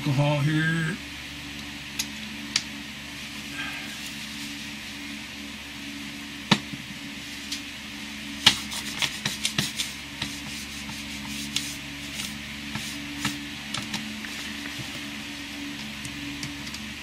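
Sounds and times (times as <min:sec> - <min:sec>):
small taps and scrapes: 0:08.4 - 0:15.0.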